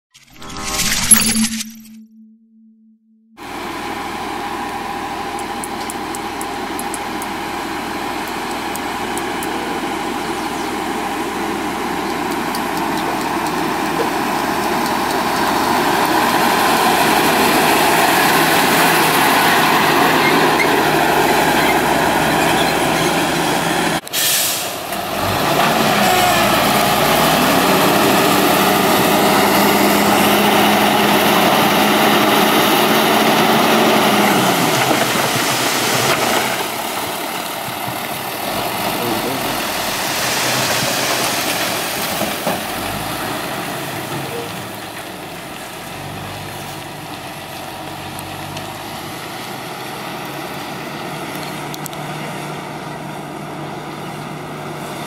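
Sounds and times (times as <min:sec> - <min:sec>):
diesel truck engine running: 0:03.4 - 0:55.0
load of earth sliding out: 0:32.2 - 0:44.8.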